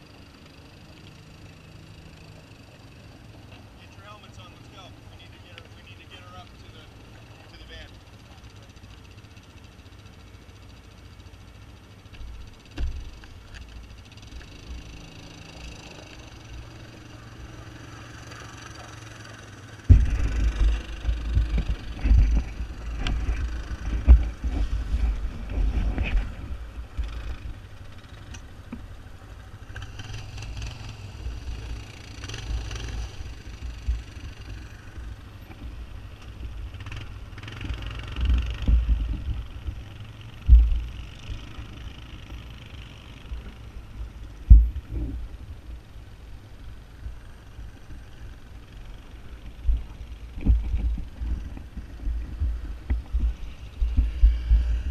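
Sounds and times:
atv engines idling: 0.0s - 54.9s
loud uneven low rumble: 19.6s - 29.8s, 43.3s - 54.9s.

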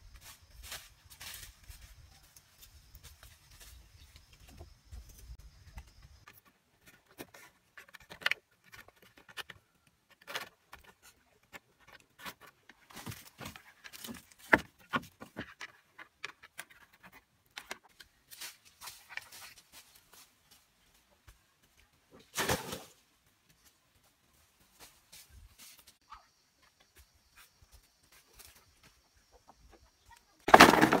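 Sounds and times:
footsteps on dry leaves: 0.1s - 4.0s.

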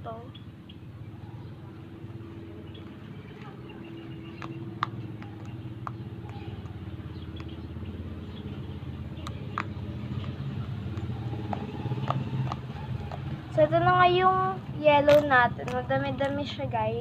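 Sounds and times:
vehicle engine humming: 0.0s - 17.0s
sharp clicks: 2.8s - 7.8s, 9.1s - 13.3s.

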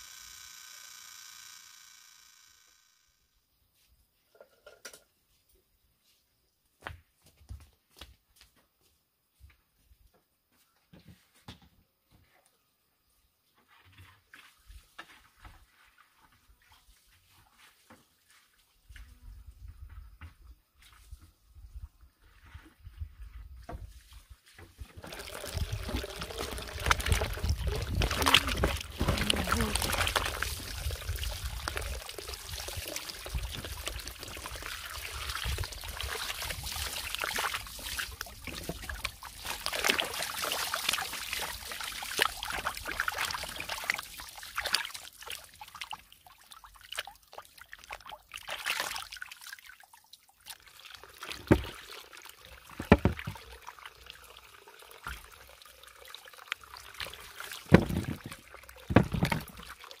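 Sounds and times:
water pouring into plastic basin: 23.9s - 60.0s
hands rubbing fruit in water: 24.9s - 44.7s, 56.6s - 59.8s
fruit splashing into water: 24.9s - 44.9s, 51.2s - 52.0s, 56.6s - 59.9s.

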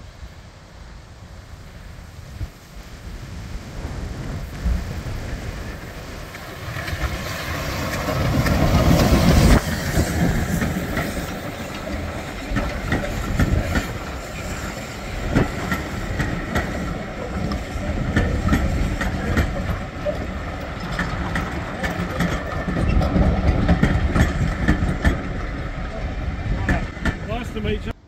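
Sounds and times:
steam locomotive passing: 0.0s - 28.0s
train wheels clickety-clack: 5.6s - 28.0s.

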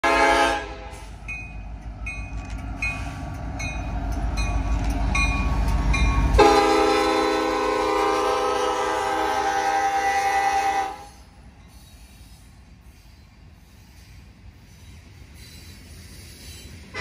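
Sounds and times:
train air horn: 0.0s - 1.2s, 6.4s - 11.3s
diesel locomotive engine rumble: 0.0s - 17.0s.

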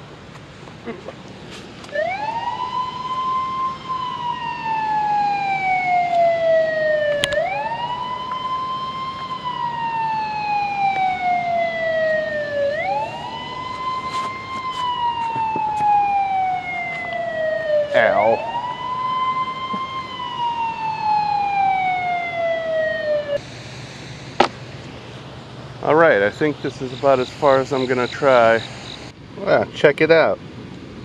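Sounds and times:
warning siren wailing: 1.9s - 23.4s.

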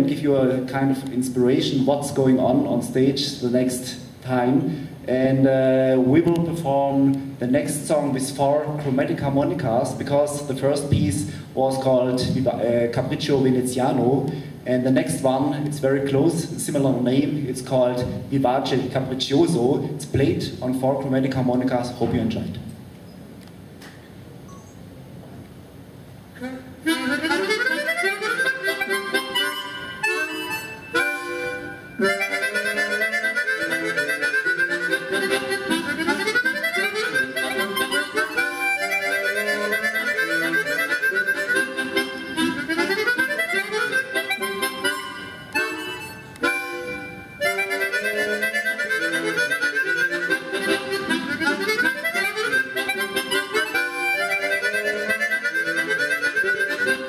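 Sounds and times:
harmonicas playing: 26.4s - 57.0s.

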